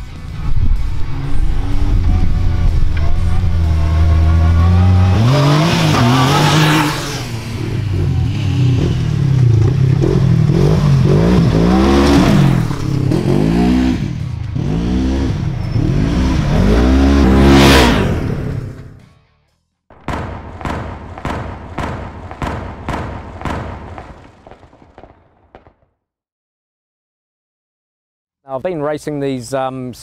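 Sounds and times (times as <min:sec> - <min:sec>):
utility vehicle engines revving: 0:00.0 - 0:19.1.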